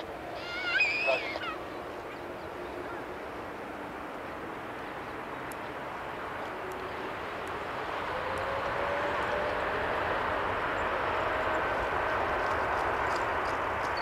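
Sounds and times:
rushing jet engine noise: 0.0s - 14.0s.

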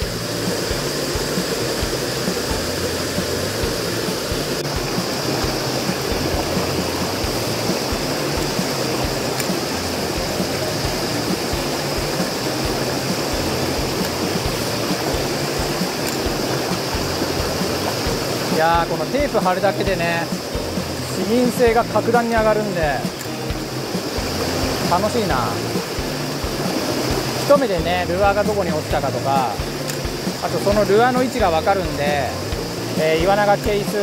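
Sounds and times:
water rushing over rocks: 0.0s - 34.0s.

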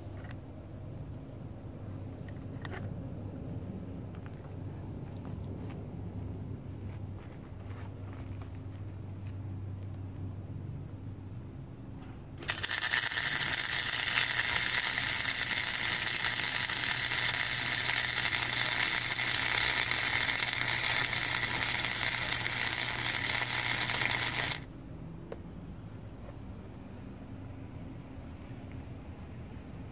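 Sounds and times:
welder arc crackling and sizzling: 12.4s - 24.7s.

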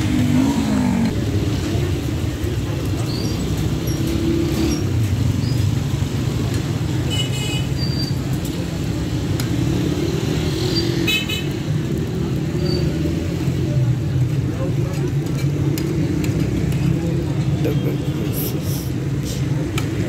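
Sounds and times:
street traffic rumble: 0.0s - 20.0s.

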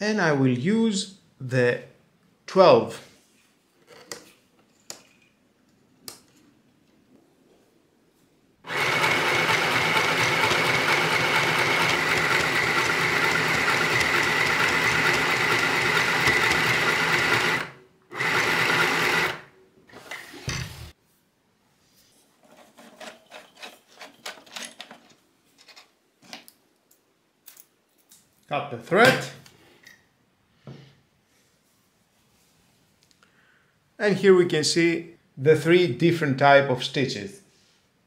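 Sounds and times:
sewing machine running: 8.7s - 20.9s.

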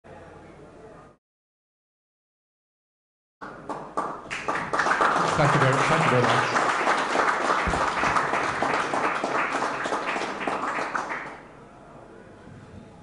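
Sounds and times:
audience applauding: 3.4s - 11.5s.

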